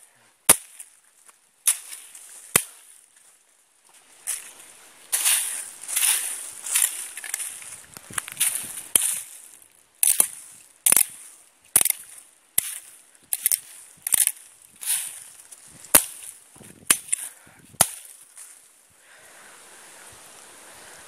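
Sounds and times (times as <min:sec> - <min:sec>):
leaves rustling: 0:00.0 - 0:21.0
machete chopping brush: 0:00.5 - 0:01.0, 0:01.6 - 0:03.0, 0:05.1 - 0:18.6.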